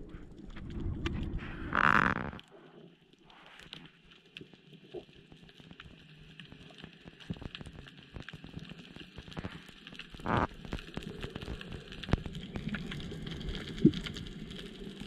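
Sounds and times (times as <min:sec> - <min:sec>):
crackle of small sharp clicks: 0:03.6 - 0:15.0.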